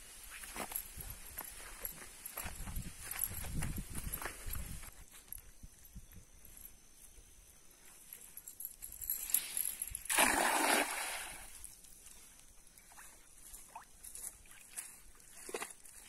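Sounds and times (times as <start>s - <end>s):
net splashing into water: 10.0s - 11.6s.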